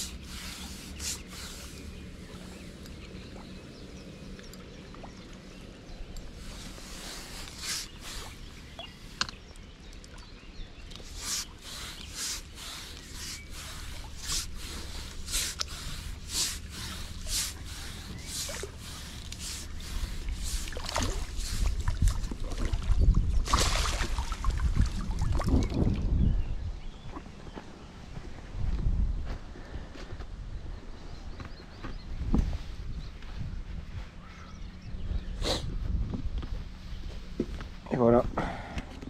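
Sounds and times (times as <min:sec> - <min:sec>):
fish thrashing splashing water: 0:11.2 - 0:25.6.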